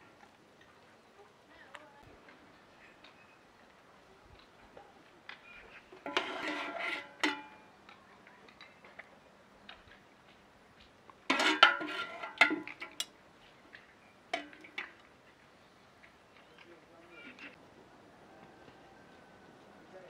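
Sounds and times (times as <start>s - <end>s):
metal spoon clinking on pot: 6.1s - 7.7s, 11.3s - 13.1s.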